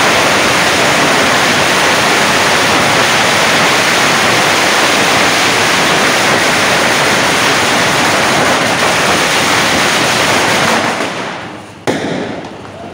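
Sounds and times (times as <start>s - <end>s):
firecrackers bursting: 0.0s - 12.9s.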